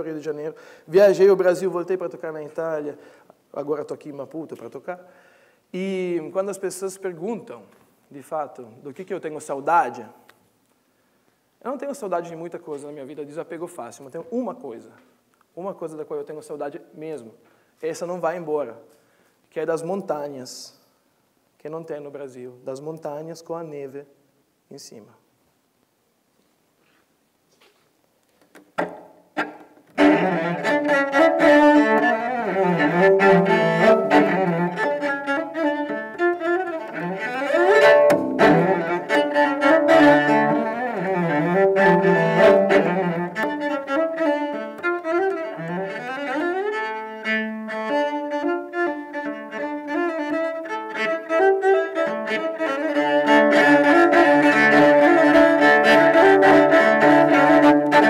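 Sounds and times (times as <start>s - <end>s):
bowed cello melody: 28.8s - 58.0s.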